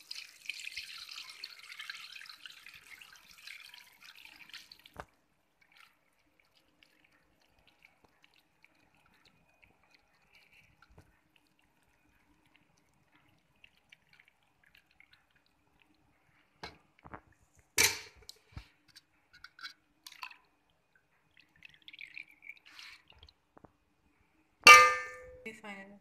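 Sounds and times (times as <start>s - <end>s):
ghee dripping through strainer: 0.0s - 24.8s
metal cookware clinking: 17.8s - 18.2s, 24.7s - 25.5s
cookware clatter: 17.8s - 18.3s, 24.7s - 25.5s.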